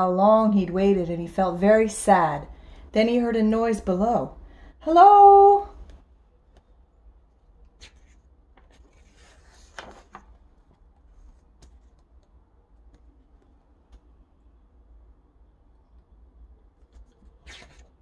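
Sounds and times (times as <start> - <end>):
book page turning: 7.6 - 12.3, 16.8 - 18.0.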